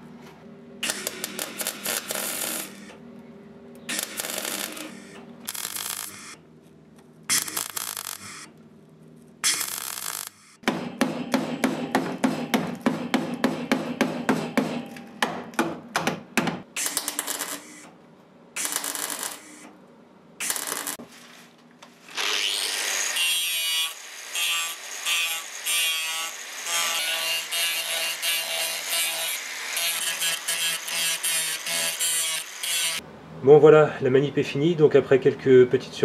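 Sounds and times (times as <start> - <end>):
welding bursts: 0.8 - 3.0, 3.9 - 6.4, 7.3 - 8.5, 9.4 - 10.6, 16.8 - 17.9, 18.6 - 19.7, 20.4 - 21.1, 22.2 - 33.0
angle grinder grinding: 3.9 - 6.4, 22.0 - 33.0
mallet knocking metal panel: 10.6 - 16.6.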